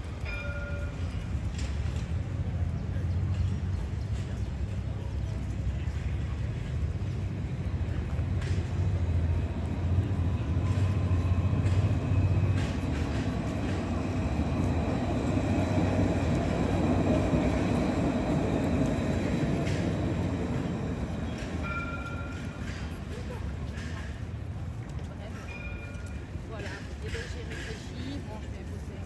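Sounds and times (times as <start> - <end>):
street noise: 0.0 - 29.0
passing vehicle rumble: 1.3 - 23.7.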